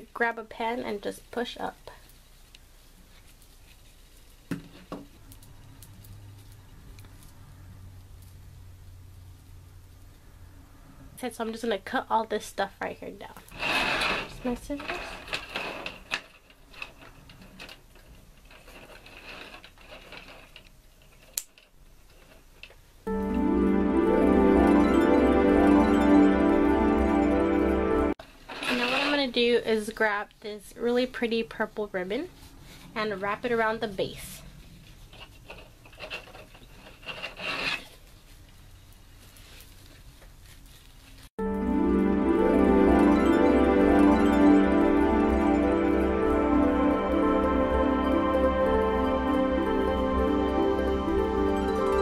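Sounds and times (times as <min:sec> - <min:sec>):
soft background music: 0:23.1 - 0:28.2, 0:41.4 - 0:52.0.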